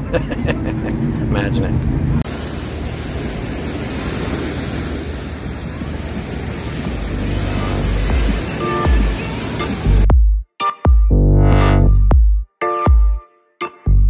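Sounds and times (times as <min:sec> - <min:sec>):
small waves on sandy shore: 0:02.2 - 0:09.9.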